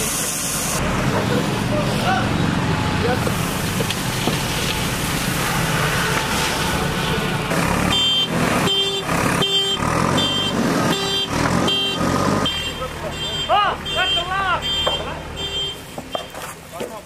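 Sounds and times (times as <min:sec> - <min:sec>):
diesel engine running: 0:00.0 - 0:15.5.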